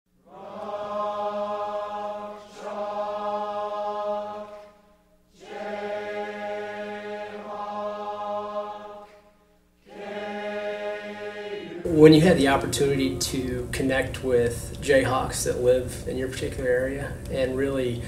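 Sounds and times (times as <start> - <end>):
many voices chanting in unison: 0.2 - 11.9.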